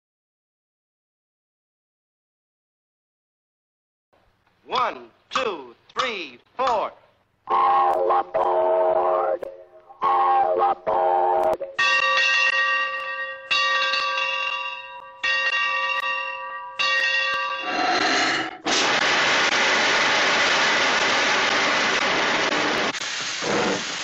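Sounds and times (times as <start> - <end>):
large bell ringing: 11.8 - 17.8
steam jet hissing: 17.7 - 24.0.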